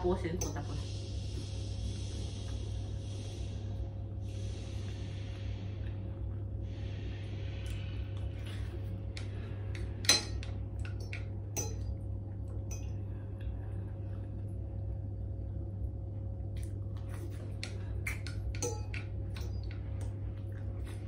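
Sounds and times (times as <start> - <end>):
cutlery clinking on ceramic bowl: 11.6 - 11.9, 18.6 - 19.1.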